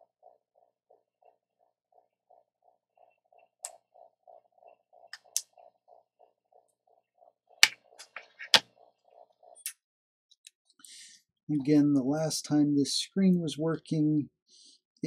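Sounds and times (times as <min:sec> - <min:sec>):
clicks and taps of small parts: 0:07.6 - 0:08.6.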